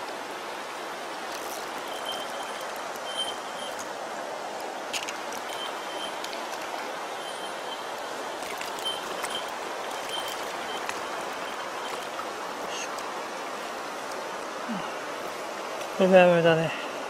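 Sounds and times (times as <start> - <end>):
stream running over rocks: 0.0 - 17.0
faint high chirps: 1.8 - 3.8, 8.7 - 12.9.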